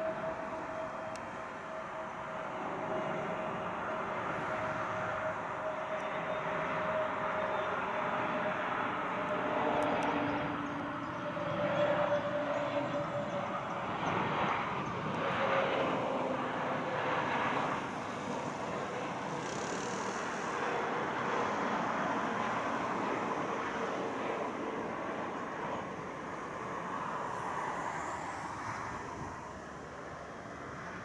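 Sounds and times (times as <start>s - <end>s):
jet engine rush with whine: 0.0s - 31.0s.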